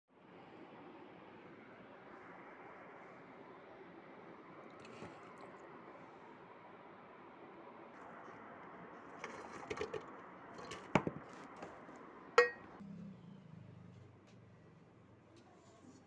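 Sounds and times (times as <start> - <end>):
metal cookware clinking: 12.4 - 12.7.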